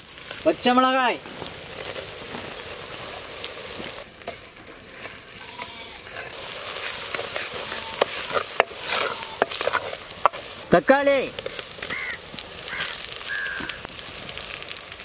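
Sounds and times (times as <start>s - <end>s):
vegetables sizzling in hot oil: 0.0s - 15.0s
wooden ladle stirring clicks: 6.9s - 10.5s.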